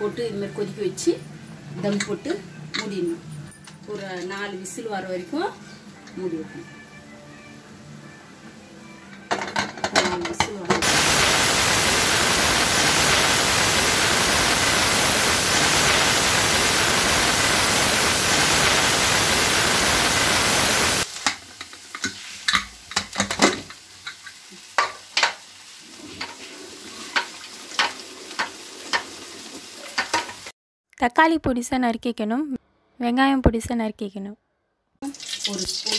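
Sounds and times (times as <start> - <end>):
pressure cooker steam hiss: 10.8 - 21.3.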